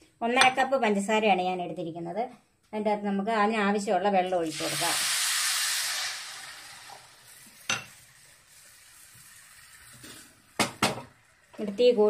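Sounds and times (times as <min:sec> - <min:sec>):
water sizzling in hot pan: 0:04.4 - 0:12.0.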